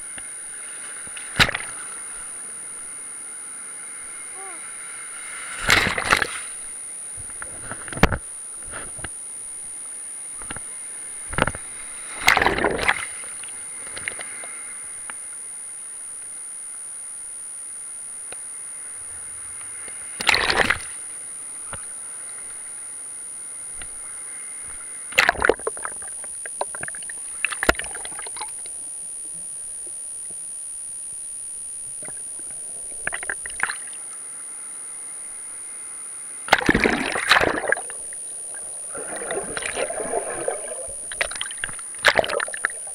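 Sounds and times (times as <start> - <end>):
constant high whine: 0.0 - 42.9
sudden water splashes: 5.5 - 6.6, 36.5 - 42.9
surf water sloshing: 36.5 - 42.9.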